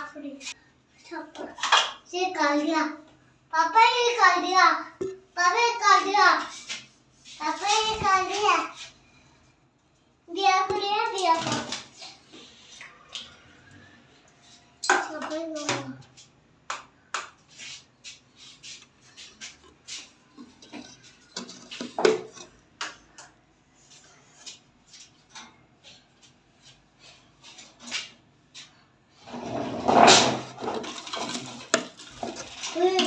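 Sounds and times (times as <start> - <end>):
rubbing scrape: 17.5 - 22.0, 29.2 - 33.0.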